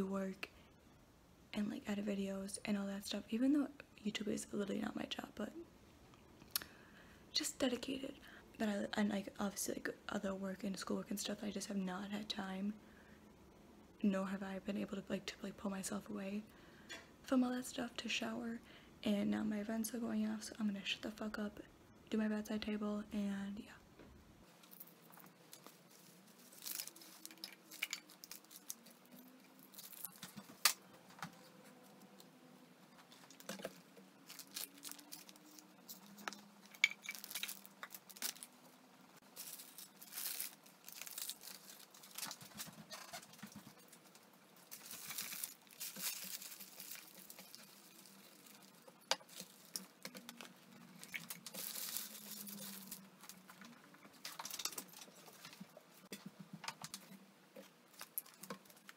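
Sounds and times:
crinkling and rustling: 24.0 - 58.9
items clattering and tapping: 33.0 - 38.5, 39.4 - 58.9.

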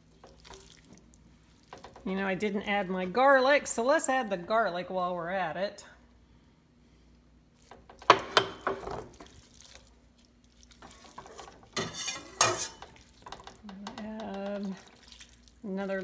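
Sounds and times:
spatula scraping vegetables in pot: 10.8 - 13.4
metal ladle clattering on pot: 10.9 - 14.7.

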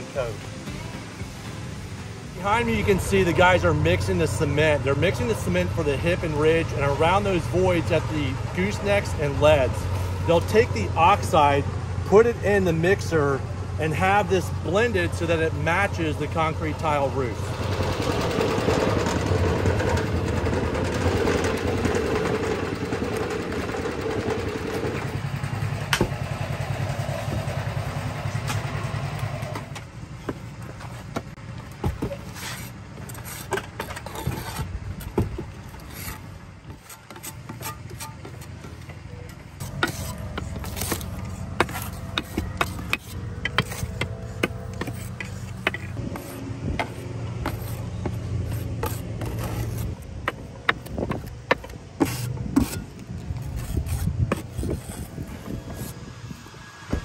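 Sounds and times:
low motor drone: 0.0 - 32.1, 38.0 - 57.0
mortar mixer engine running: 17.4 - 56.1
paddles churning wet mortar: 30.2 - 39.0, 39.6 - 56.0.

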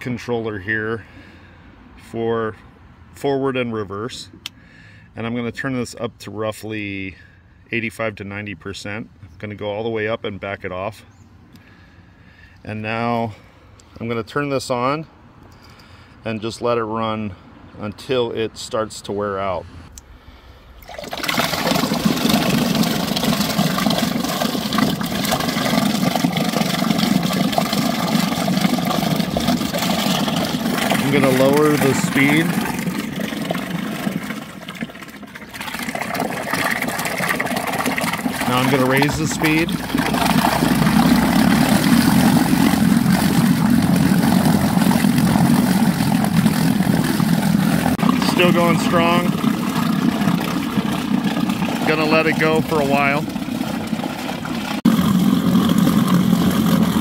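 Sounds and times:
propeller churning water: 0.0 - 8.9, 20.0 - 57.0
electric motor hum: 52.2 - 57.0
electric motor running: 54.8 - 57.0.

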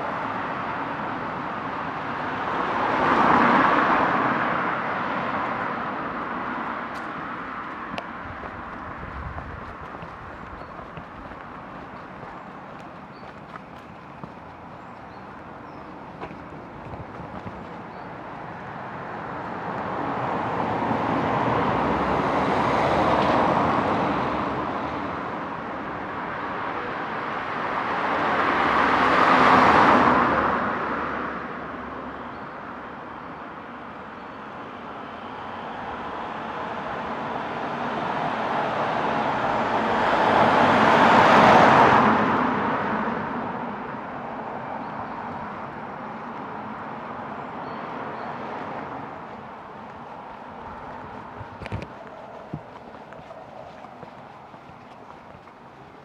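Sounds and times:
cars passing by: 0.0 - 56.0.

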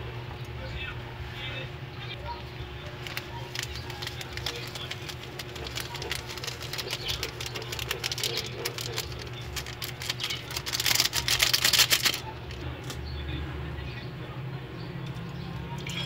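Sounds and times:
steady low hum: 0.0 - 16.0
plastic sachet crinkly shaking: 2.8 - 12.6.

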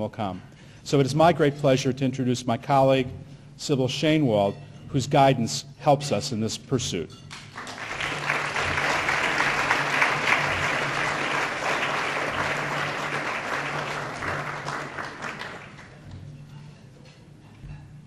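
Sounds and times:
audience applauding: 7.4 - 16.1.

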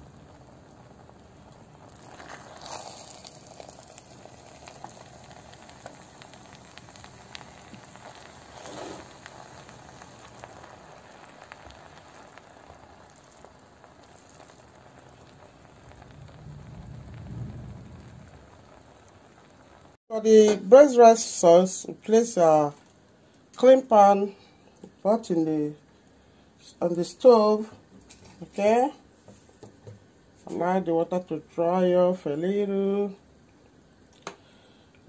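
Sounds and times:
rice sizzling in pot: 0.0 - 23.0
spoon scraping rice: 2.2 - 3.6.

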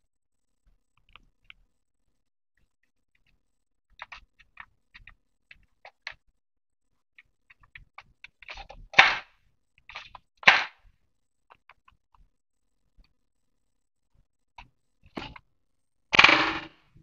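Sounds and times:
sharp plastic snaps: 7.5 - 10.9.

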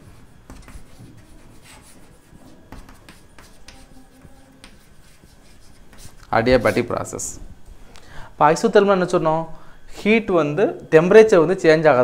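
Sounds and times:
chalk scratching on blackboard: 0.0 - 7.0
chalk tapping on board: 0.4 - 6.9.

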